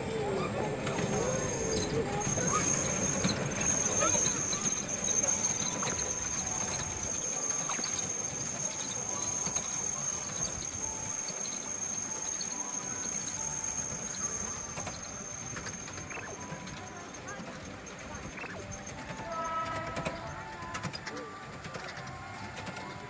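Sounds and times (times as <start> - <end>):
high-pitched whine: 0.0 - 17.4
miniature train rumbling: 0.0 - 23.0.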